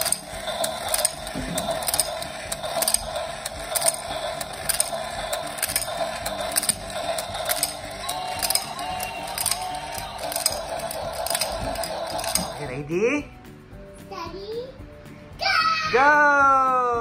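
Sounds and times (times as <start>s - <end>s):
toy mechanism clicking: 0.0s - 12.8s
toy motor and gears whirring: 0.0s - 12.8s.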